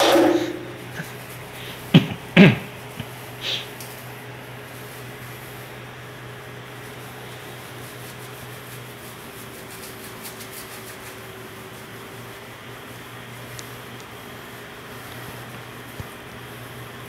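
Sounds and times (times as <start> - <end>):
low hum: 0.0 - 1.4
wet rubbing and squishing of fur: 0.0 - 17.0.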